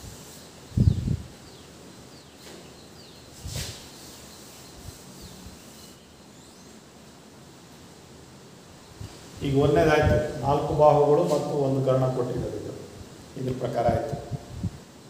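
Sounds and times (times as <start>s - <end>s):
faint bird chirps: 0.6s - 6.8s.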